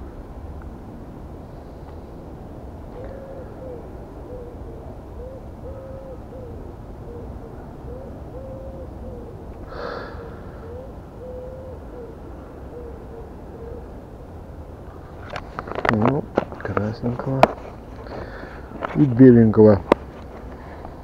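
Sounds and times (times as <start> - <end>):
dove cooing: 2.9 - 16.0.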